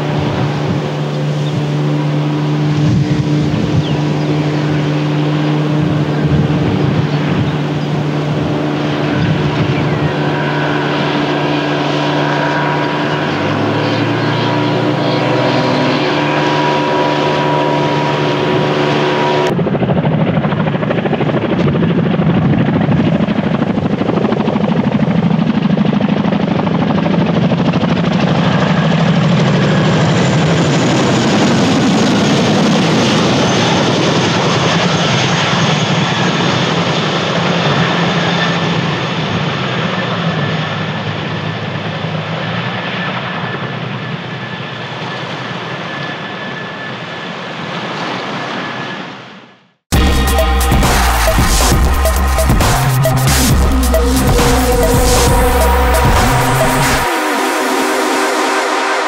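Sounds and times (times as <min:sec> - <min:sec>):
outboard motor running: 0:00.0 - 0:19.5
helicopter rotor chop: 0:00.0 - 0:41.8, 0:49.9 - 0:59.0.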